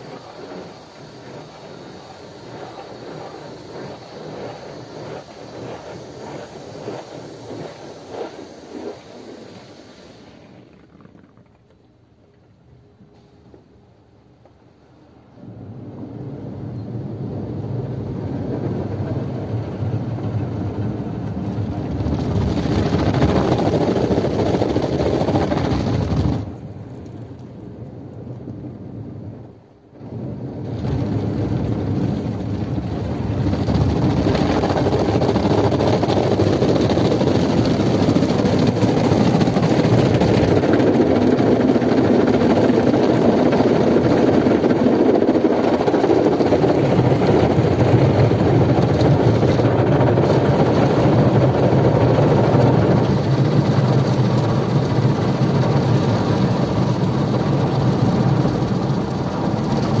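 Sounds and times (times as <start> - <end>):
car wash machine running: 0.0 - 11.4, 15.6 - 27.6, 30.0 - 60.0
water jets pouring over car: 30.2 - 60.0.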